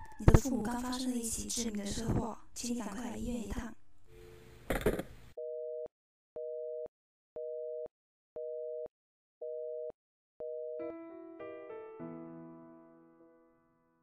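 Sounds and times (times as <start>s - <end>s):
telephone busy tone beeps: 5.4s - 10.8s
soft piano music: 10.8s - 14.0s.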